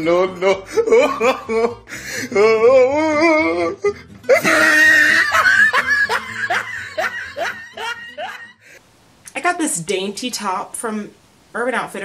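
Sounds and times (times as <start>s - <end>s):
laughter: 4.3s - 8.6s.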